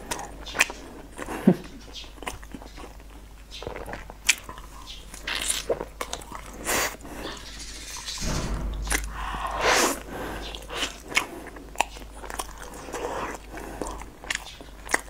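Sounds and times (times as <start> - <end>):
close chewing and biting: 0.0 - 7.0, 11.2 - 15.0.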